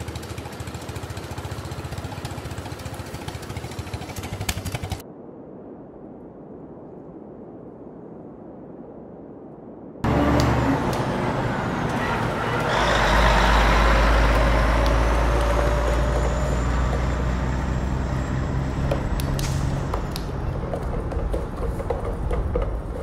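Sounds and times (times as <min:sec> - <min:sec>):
truck engine rumbling: 0:00.0 - 0:05.0, 0:10.0 - 0:23.0
high engine whine: 0:10.0 - 0:23.0.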